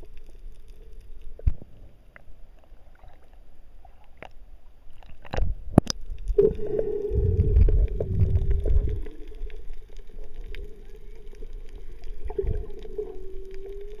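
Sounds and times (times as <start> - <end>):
fine underwater crackling: 0.0 - 14.0
underwater hum: 0.0 - 14.0
water splashes: 1.3 - 14.0
rumbling surges of water: 6.2 - 14.0.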